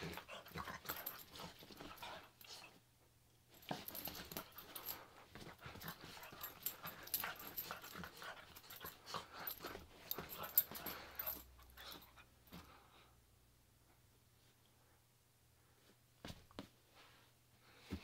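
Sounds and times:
dog breathy play noises: 0.0 - 2.8, 3.6 - 13.1.

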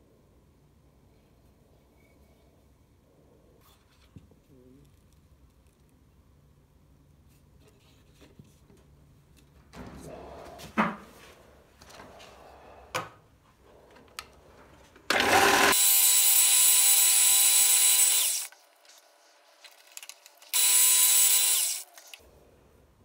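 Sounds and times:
belt sander running: 15.1 - 18.5, 20.5 - 21.9.

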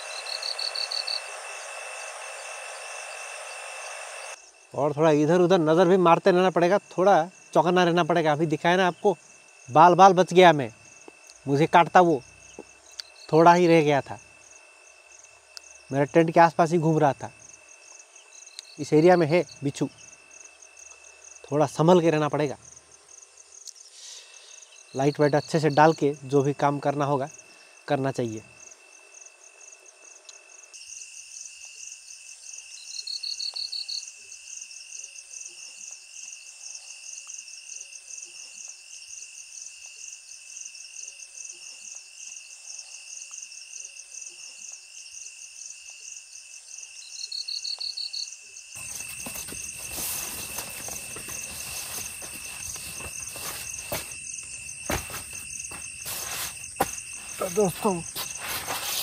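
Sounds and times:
crickets and insects trilling: 0.0 - 59.0
loud pulsing insect trill: 0.0 - 59.0
hiss with scattered clicks: 57.3 - 59.0.

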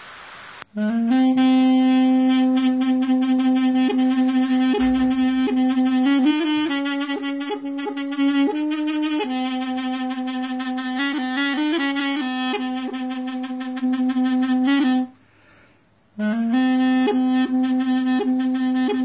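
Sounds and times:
double-reed pipe melody: 0.8 - 15.1, 16.2 - 19.0.

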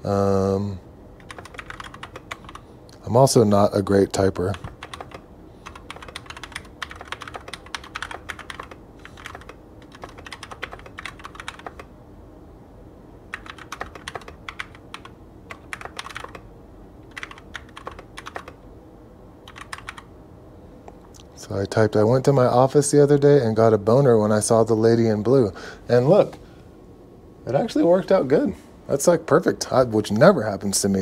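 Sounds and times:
mechanical keyboard typing: 1.2 - 2.6, 4.5 - 11.9, 13.3 - 16.4, 17.1 - 18.6, 19.4 - 20.1.

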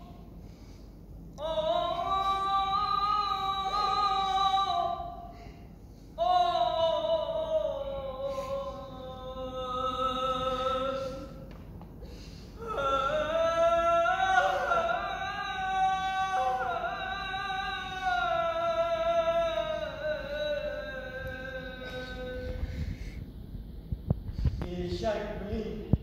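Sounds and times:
high solo voice singing: 1.4 - 5.6, 6.2 - 11.5, 12.6 - 23.2.

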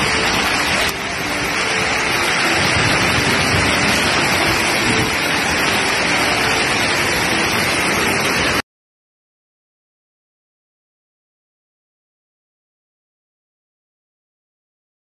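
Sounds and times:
heavy rain and hail on ground: 0.0 - 8.6.

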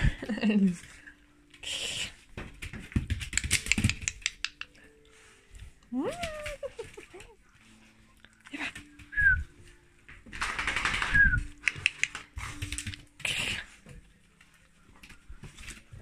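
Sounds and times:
dog claws clicking on tile: 2.5 - 4.9, 10.2 - 13.2.

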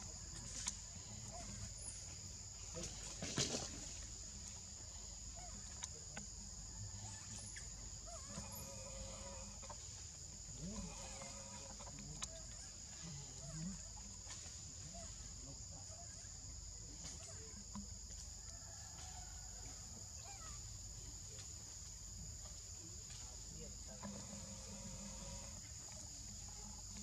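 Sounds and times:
animal call: 6.8 - 9.9, 10.6 - 14.0.

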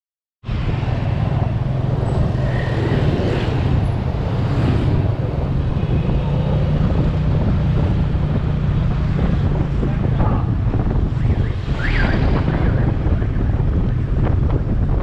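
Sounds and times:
road and traffic noise: 0.4 - 15.0.

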